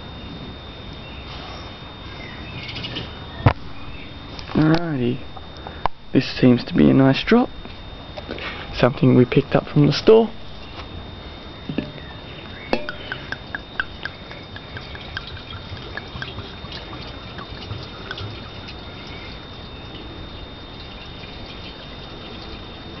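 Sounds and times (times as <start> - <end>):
fuel glugging and dripping: 11.7 - 23.0
fuel trickling: 12.8 - 23.0.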